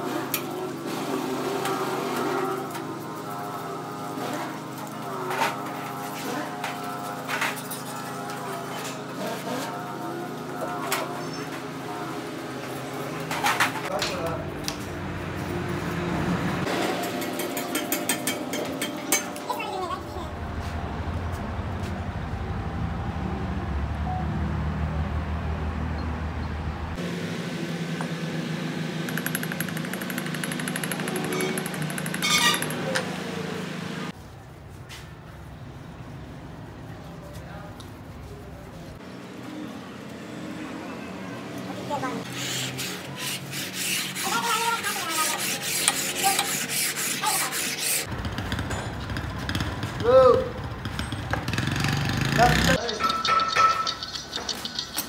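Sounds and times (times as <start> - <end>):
low mechanical hum: 0.0 - 39.4
rapid rubbing strokes: 42.2 - 48.1.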